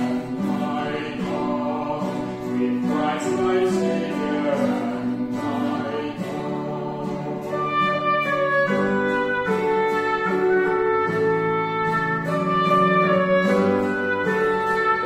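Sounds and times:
man and woman singing hymn: 0.0 - 10.2
acoustic guitar: 0.0 - 15.0
woodwind: 2.0 - 15.0.

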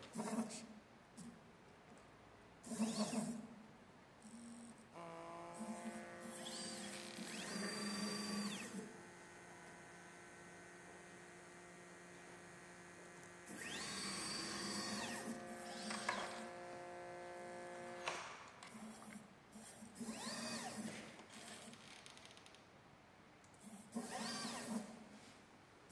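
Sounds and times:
steady electrical hum: 3.3 - 25.9
stepper motors whining: 5.6 - 8.9, 13.4 - 18.2.

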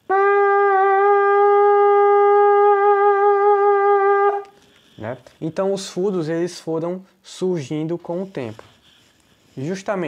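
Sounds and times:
goat horn long steady note: 0.0 - 4.5.

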